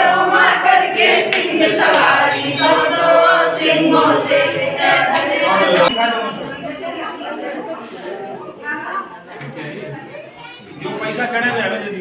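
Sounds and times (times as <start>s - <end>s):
group singing a hymn unaccompanied: 0.0s - 5.9s.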